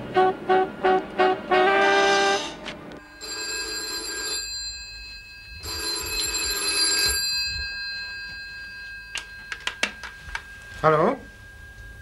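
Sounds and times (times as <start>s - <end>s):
telephone bell ringing: 3.0s - 12.0s.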